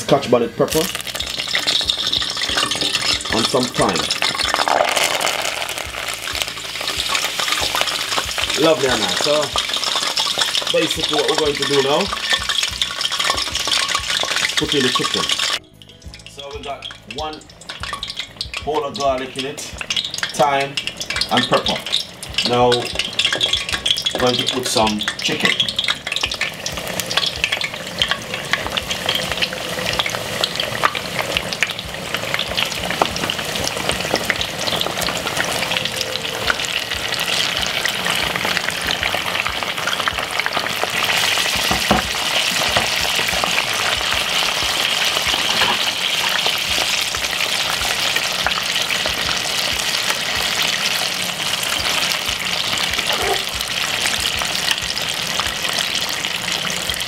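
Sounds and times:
chicken deep-frying in oil: 0:00.0 - 0:57.0
metal utensil knocking on pot: 0:01.3 - 0:15.5, 0:16.9 - 0:18.8, 0:19.8 - 0:35.3, 0:41.0 - 0:47.4.

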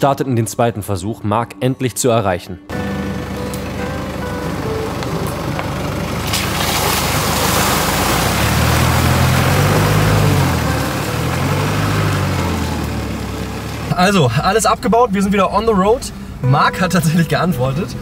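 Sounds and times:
car engine accelerating: 0:02.7 - 0:18.0
tyres splashing through mud: 0:05.3 - 0:15.0.

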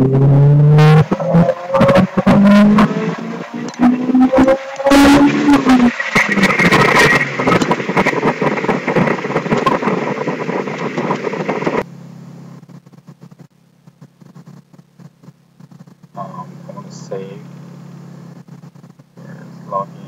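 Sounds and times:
car engine revving down to idle: 0:00.0 - 0:11.9
in-car noise: 0:00.0 - 0:20.0.

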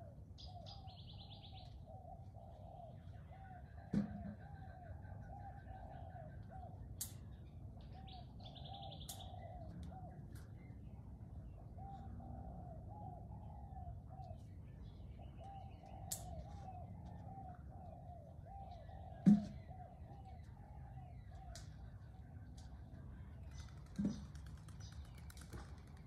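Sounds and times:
dove cooing: 0:01.6 - 0:06.8, 0:11.7 - 0:14.4.

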